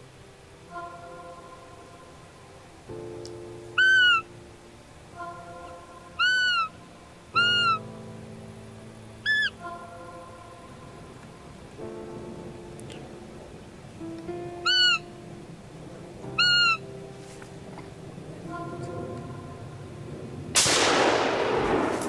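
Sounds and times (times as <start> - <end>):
background music with held tones: 0.0 - 21.5
high whistling deer calls: 3.7 - 4.3, 5.2 - 8.0, 9.2 - 11.0, 14.5 - 15.1, 16.3 - 17.0.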